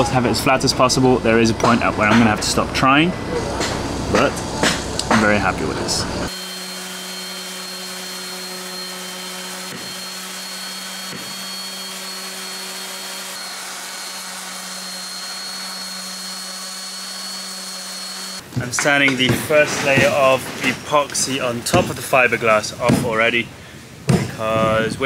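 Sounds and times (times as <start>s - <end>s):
palm sander running: 4.4s - 18.4s
sandpaper hissing: 6.3s - 18.4s.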